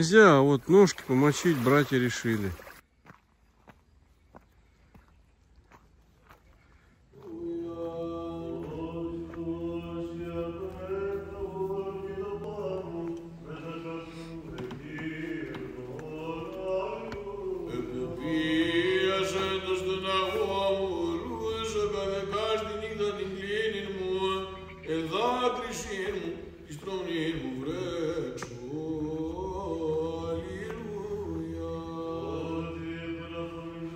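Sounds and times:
voices chanting slow melody: 0:07.1 - 0:33.9.

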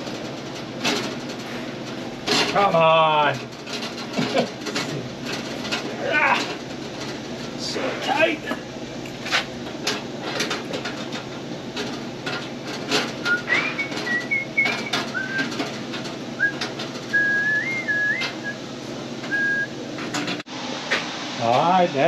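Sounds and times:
person whistling a tune: 0:13.3 - 0:15.5, 0:16.4 - 0:18.6, 0:19.3 - 0:19.7.

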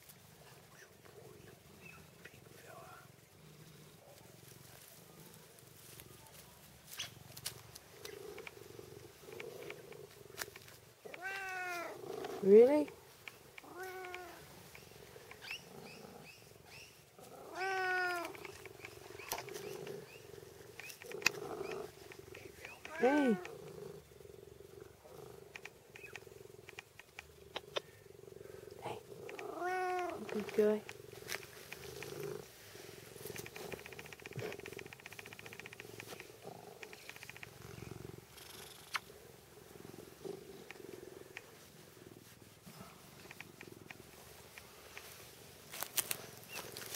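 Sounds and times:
cat purring: 0:00.0 - 0:46.9
cat meowing: 0:11.1 - 0:12.0, 0:13.6 - 0:14.4, 0:17.5 - 0:18.4, 0:29.4 - 0:30.2.

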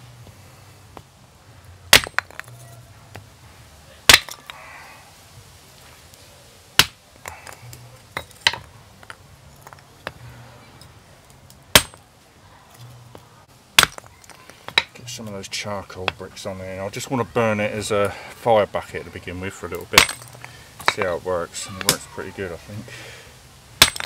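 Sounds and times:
axe chopping wood cracks: 0:01.9 - 0:02.6, 0:04.1 - 0:04.5, 0:06.8 - 0:09.2, 0:11.7 - 0:12.1, 0:13.7 - 0:15.0, 0:19.8 - 0:21.1, 0:21.8 - 0:22.1, 0:23.8 - 0:24.0.

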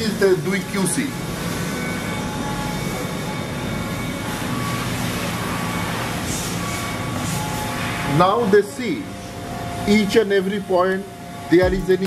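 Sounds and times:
factory machinery din: 0:11.6 - 0:12.0.

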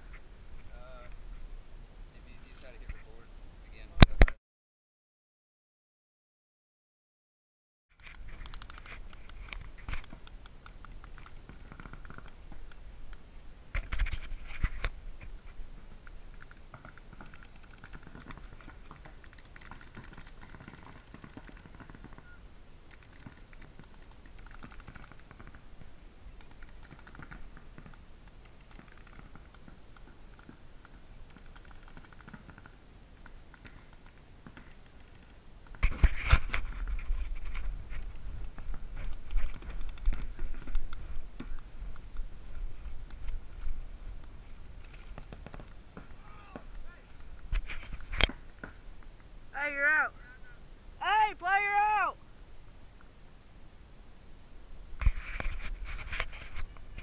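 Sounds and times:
paintball markers firing: 0:16.3 - 0:22.2.

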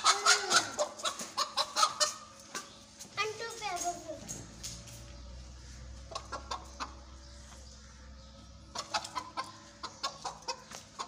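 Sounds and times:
hen clucking: 0:00.0 - 0:02.7, 0:05.9 - 0:07.6, 0:08.7 - 0:11.0.

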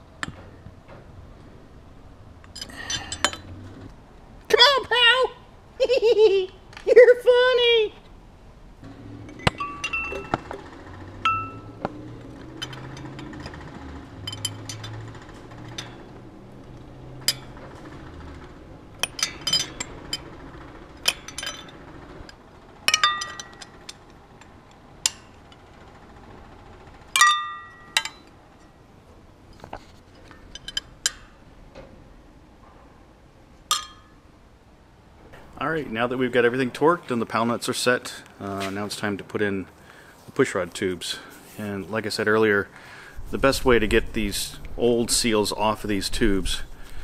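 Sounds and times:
wrench clinking on metal nuts: 0:02.4 - 0:03.6, 0:09.2 - 0:18.4, 0:19.0 - 0:25.7, 0:27.1 - 0:28.7, 0:30.2 - 0:31.4, 0:33.7 - 0:34.2.

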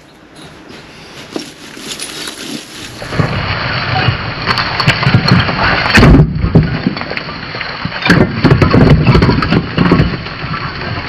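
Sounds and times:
brick wall collapsing: 0:01.8 - 0:11.0
bricks knocking together: 0:08.0 - 0:10.2.

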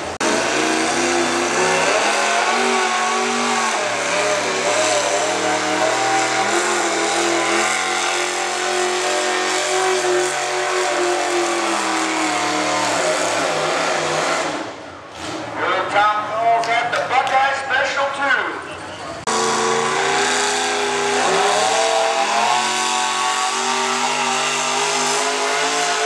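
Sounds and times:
engine running hard under load: 0:00.0 - 0:15.6, 0:19.2 - 0:26.0.

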